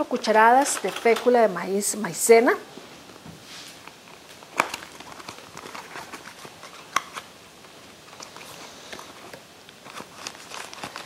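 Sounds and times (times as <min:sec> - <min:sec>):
kitchen items clicking and tapping: 0:00.0 - 0:01.6.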